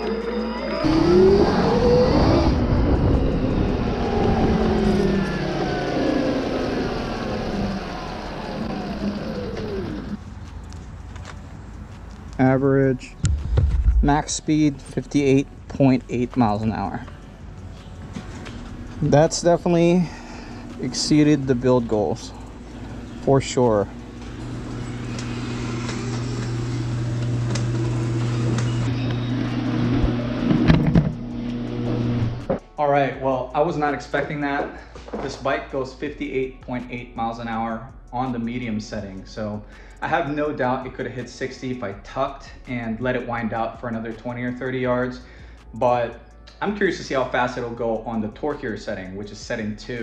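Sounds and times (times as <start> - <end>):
low rumble: 0.0 - 10.2, 13.1 - 14.9
electric motor and chain whining: 0.0 - 10.8, 18.3 - 32.5.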